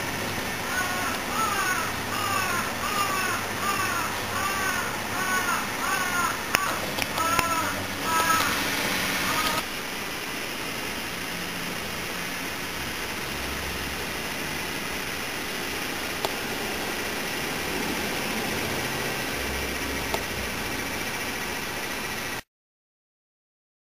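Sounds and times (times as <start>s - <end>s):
background hiss: 0.0s - 22.4s.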